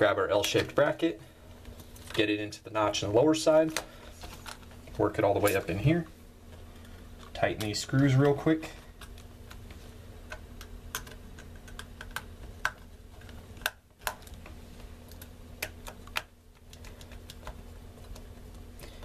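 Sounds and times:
faint steady hum: 0:00.0 - 0:19.0
screwdriver clicking and tapping on screws: 0:10.3 - 0:14.5.

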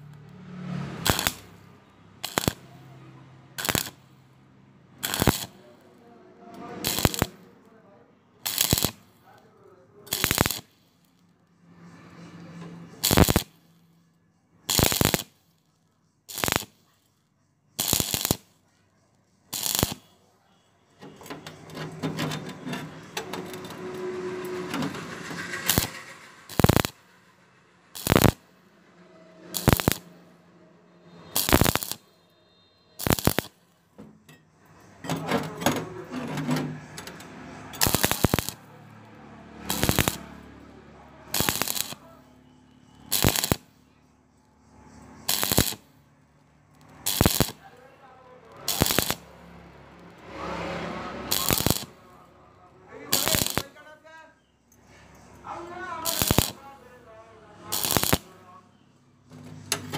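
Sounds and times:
welding arc crackling: 0:00.0 - 0:02.9, 0:03.6 - 0:04.2, 0:05.0 - 0:05.7, 0:06.6 - 0:07.5, 0:08.4 - 0:09.3, 0:10.0 - 0:11.2, 0:13.0 - 0:13.6, 0:14.7 - 0:15.4, 0:16.3 - 0:16.8, 0:17.8 - 0:18.5, 0:19.5 - 0:20.2, 0:23.0 - 0:27.3, 0:27.9 - 0:28.6, 0:29.4 - 0:30.2, 0:31.1 - 0:32.1, 0:33.0 - 0:33.7, 0:37.2 - 0:40.7, 0:41.3 - 0:42.2, 0:43.0 - 0:43.7, 0:45.1 - 0:52.3, 0:52.9 - 0:54.0, 0:55.3 - 0:58.6.

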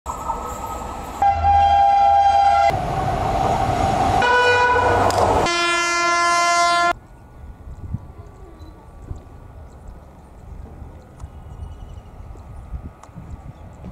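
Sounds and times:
train rumbling past: 0:00.1 - 0:13.9
locomotive air horn blasts: 0:01.2 - 0:02.8, 0:04.2 - 0:07.0.

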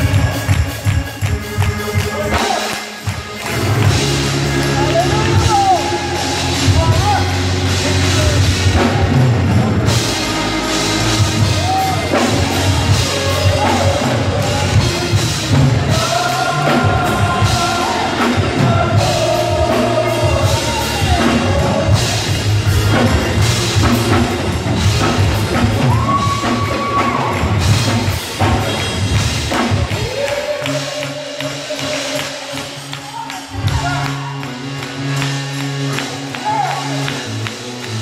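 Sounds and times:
drum kit: 0:00.0 - 0:38.0
gospel church band: 0:00.0 - 0:38.0
group of vocalists singing: 0:11.1 - 0:23.2, 0:29.9 - 0:33.2.

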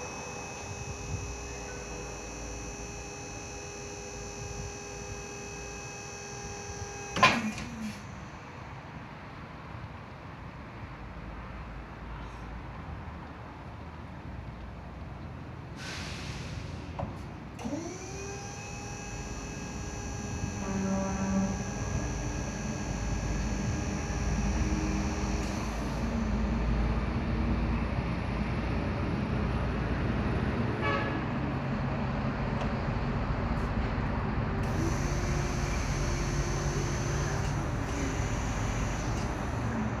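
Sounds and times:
electric forklift motor hum: 0:00.0 - 0:08.6, 0:17.6 - 0:28.0, 0:34.0 - 0:40.0.

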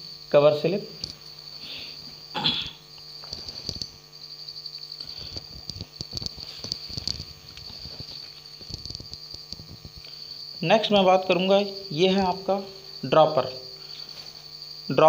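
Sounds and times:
high-pitched whine: 0:00.0 - 0:15.0
low electrical hum: 0:00.0 - 0:15.0
small objects clicking and knocking: 0:05.0 - 0:10.1.

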